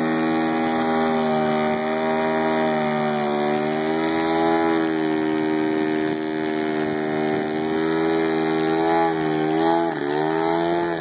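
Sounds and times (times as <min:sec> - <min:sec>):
model plane engine and propeller: 0:00.0 - 0:11.0.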